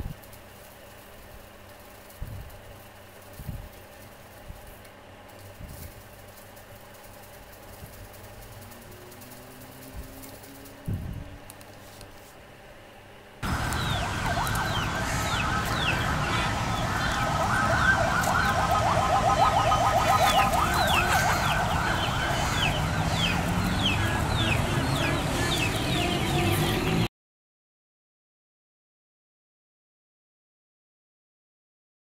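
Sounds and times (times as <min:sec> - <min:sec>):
low outdoor rumble: 0:00.0 - 0:27.1
chickens and birds chirping: 0:13.4 - 0:27.1.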